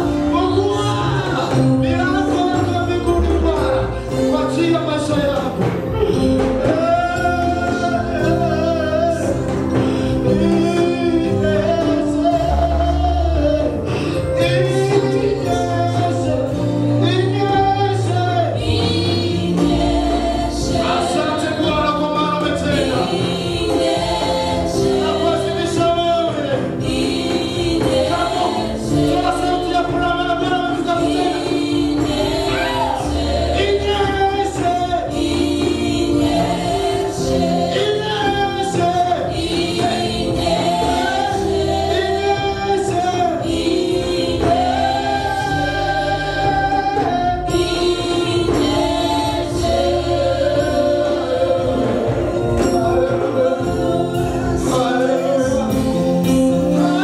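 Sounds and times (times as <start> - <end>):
man singing into microphone: 0.0 - 18.7, 20.8 - 23.3, 33.6 - 35.3, 50.6 - 57.0
instrumental accompaniment: 0.0 - 57.0
women's backing vocals: 18.4 - 21.7, 22.8 - 25.6, 26.5 - 57.0.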